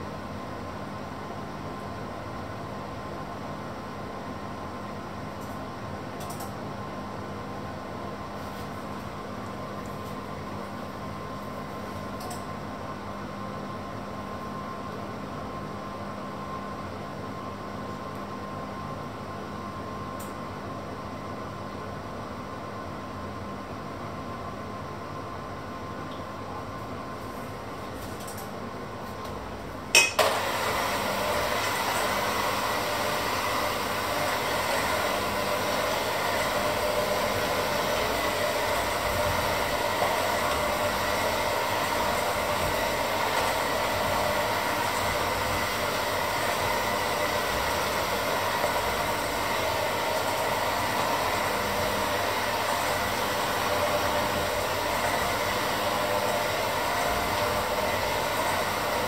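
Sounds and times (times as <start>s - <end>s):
electric hand mixer running: 30.2s - 59.0s.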